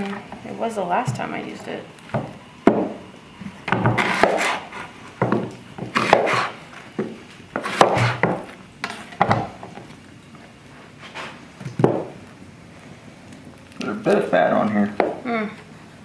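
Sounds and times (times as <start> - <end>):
knife slicing onion on board: 3.7 - 6.6, 7.5 - 9.6
knife scraping on board: 3.8 - 5.0, 5.8 - 6.6, 7.6 - 9.2, 11.0 - 11.4.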